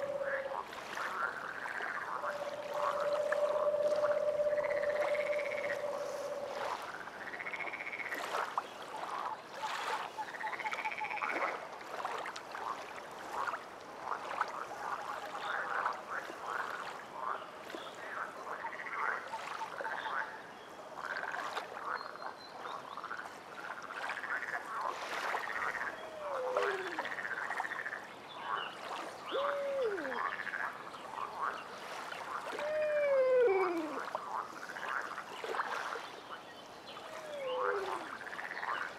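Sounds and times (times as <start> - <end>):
low frog calls sliding down: 0.0 - 7.9, 25.4 - 28.0, 29.2 - 30.8, 32.4 - 34.8, 37.1 - 38.9
frogs croaking: 0.0 - 38.9.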